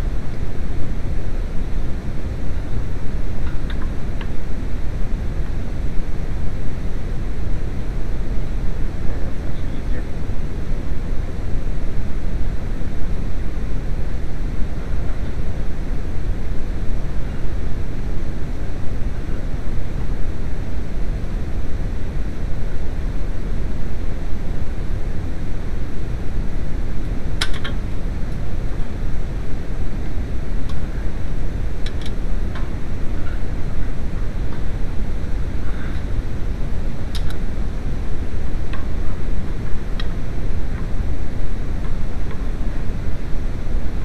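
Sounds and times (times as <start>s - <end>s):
steady low rumbling: 0.0s - 44.0s.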